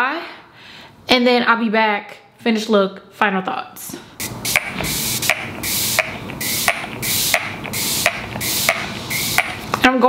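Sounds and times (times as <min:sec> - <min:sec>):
spray bottle click and hiss: 0:04.2 - 0:09.8.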